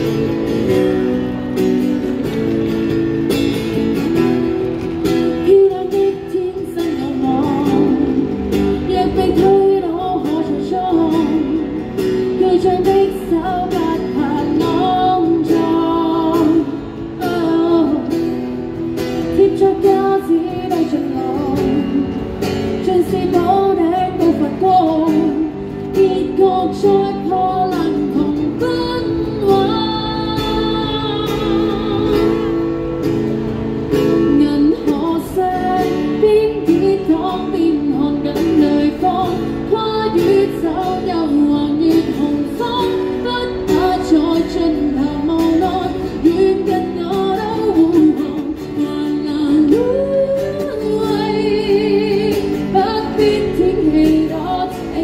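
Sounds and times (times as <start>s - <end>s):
woman singing pop song: 0.0s - 32.9s, 33.9s - 55.0s
strummed acoustic guitar: 0.0s - 55.0s.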